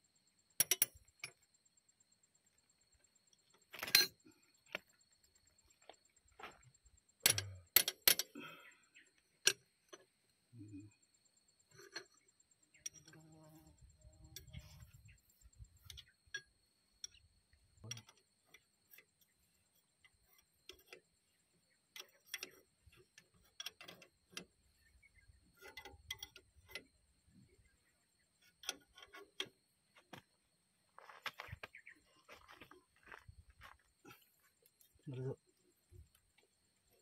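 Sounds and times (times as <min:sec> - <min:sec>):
hand tools tapping metal: 0:00.6 - 0:01.4, 0:07.2 - 0:08.6, 0:15.7 - 0:17.3, 0:17.9 - 0:27.0, 0:28.4 - 0:30.3.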